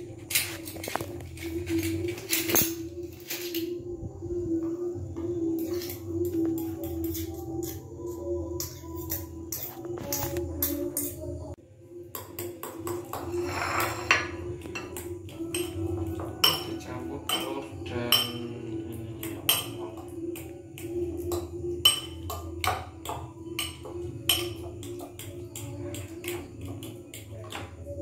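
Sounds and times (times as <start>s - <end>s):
fork clinking against ceramic bowl: 12.1s - 20.5s, 21.3s - 27.7s.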